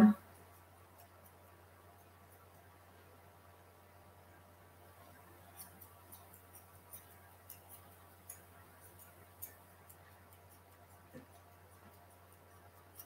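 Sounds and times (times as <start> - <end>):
scissors snipping fur: 0.5 - 1.4, 5.4 - 13.0.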